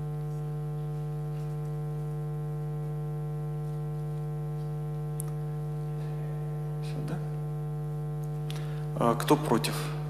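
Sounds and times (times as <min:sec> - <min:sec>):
steady electrical hum: 0:00.0 - 0:10.0.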